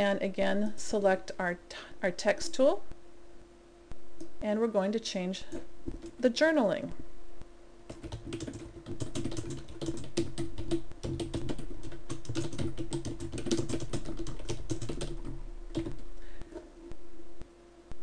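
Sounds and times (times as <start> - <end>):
typing on computer keyboard: 7.9 - 16.0.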